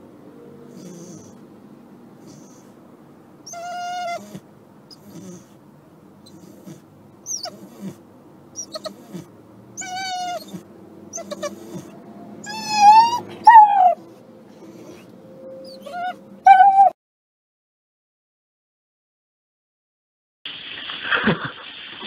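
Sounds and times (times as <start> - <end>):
dog whining: 0.7 - 1.4, 2.2 - 2.8, 3.4 - 5.6, 6.2 - 8.0, 8.6 - 17.0.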